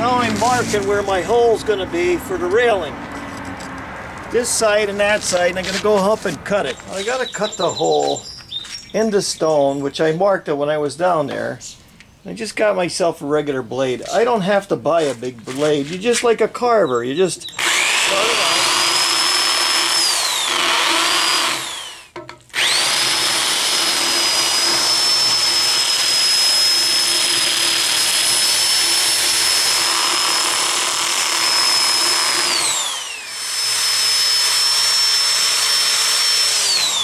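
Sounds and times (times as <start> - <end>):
drill bit grinding stone: 17.5 - 37.0
electric drill whining: 17.5 - 37.0.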